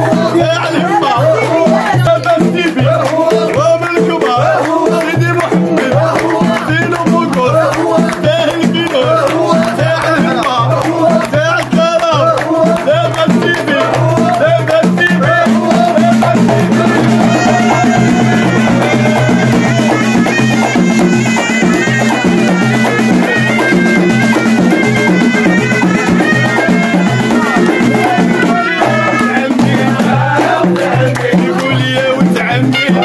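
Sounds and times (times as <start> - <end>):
frame drums beating: 0.0 - 33.0
men singing: 0.0 - 33.0
shrill wind instrument melody: 15.6 - 29.6, 32.7 - 33.0.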